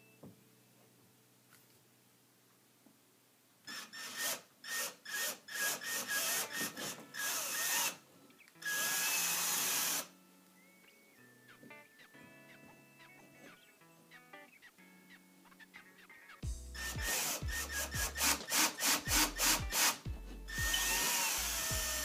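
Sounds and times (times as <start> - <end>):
cordless drill drilling into wall: 3.7 - 8.0, 8.6 - 10.1, 16.8 - 20.0, 20.6 - 22.0.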